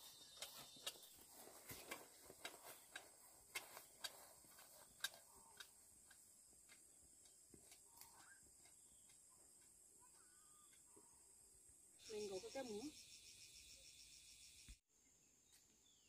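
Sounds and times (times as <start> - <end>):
sharp clicks and taps: 1.9 - 9.8.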